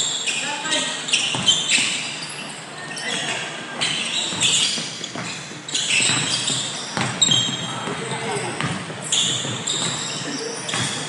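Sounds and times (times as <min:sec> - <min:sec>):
sneakers squeaking: 0:00.0 - 0:11.0
basketball bouncing on court: 0:01.2 - 0:02.0, 0:03.1 - 0:11.0.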